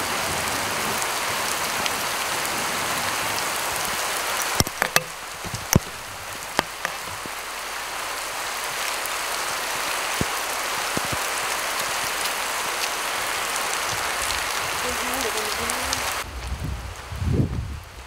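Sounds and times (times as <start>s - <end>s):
steady rain falling: 0.0s - 18.0s
sharp taps of close drops: 4.6s - 7.3s.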